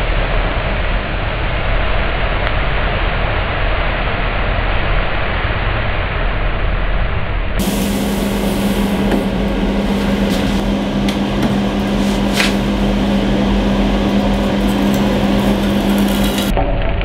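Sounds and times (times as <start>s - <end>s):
machine hum with hiss: 7.6s - 16.5s.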